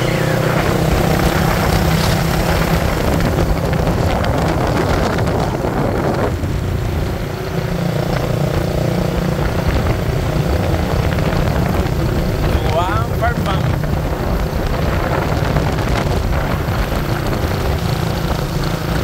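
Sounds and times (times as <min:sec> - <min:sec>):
vehicle engine humming: 0:00.0 - 0:19.0
wind rush: 0:00.0 - 0:19.0.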